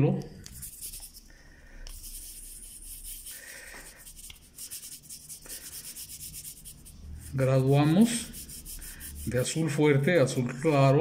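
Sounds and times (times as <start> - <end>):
fingers rubbing paint on paper: 0.5 - 1.3, 1.9 - 11.0.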